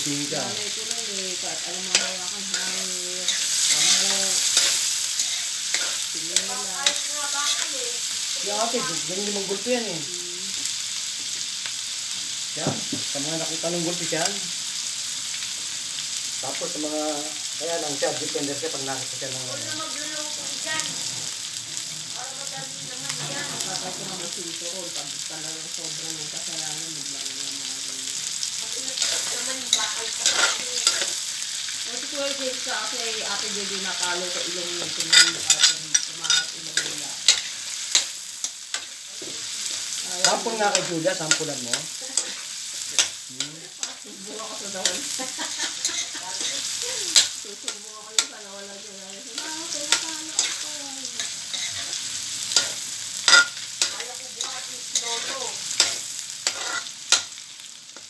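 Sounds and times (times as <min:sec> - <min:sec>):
food sizzling in hot oil: 0:00.0 - 0:58.0
metal spatula scraping a wok: 0:01.4 - 0:08.3, 0:20.4 - 0:21.9, 0:22.9 - 0:24.4, 0:28.9 - 0:31.3, 0:33.4 - 0:48.4, 0:49.3 - 0:57.4.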